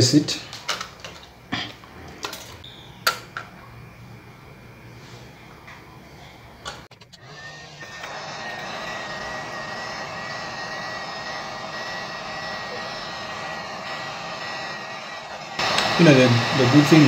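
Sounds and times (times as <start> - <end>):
hot air gun blowing: 6.9 - 17.0.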